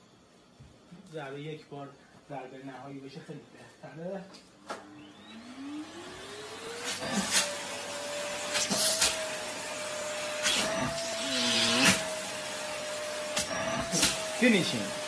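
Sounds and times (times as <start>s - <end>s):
vacuum cleaner motor whine: 4.5s - 15.0s.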